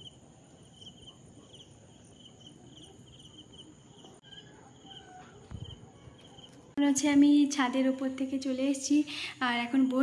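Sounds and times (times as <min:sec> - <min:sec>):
cricket chirping: 0:00.0 - 0:06.8
faint background noise: 0:00.0 - 0:10.0.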